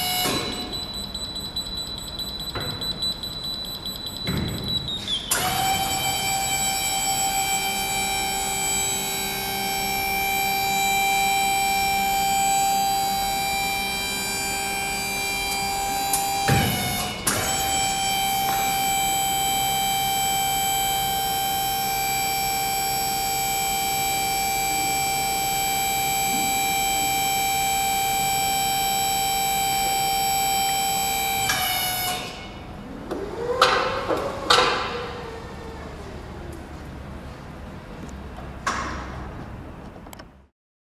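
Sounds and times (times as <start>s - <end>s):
hydraulic power unit whine: 0.0s - 40.5s
short motor whine: 5.3s - 33.7s.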